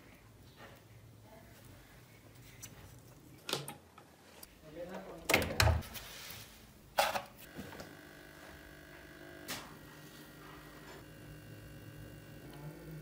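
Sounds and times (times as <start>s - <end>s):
battery charger humming: 7.4s - 13.0s.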